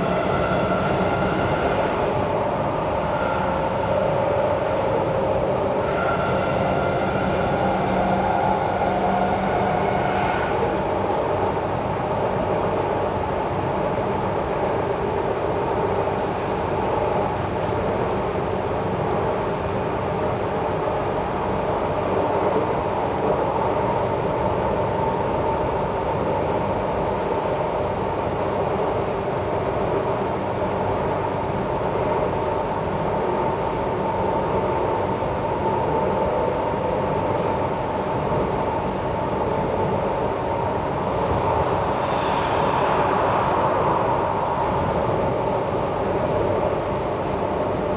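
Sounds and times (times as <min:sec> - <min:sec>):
steady hum: 0:00.0 - 0:47.9
train wheels rumbling on rail: 0:00.0 - 0:47.9.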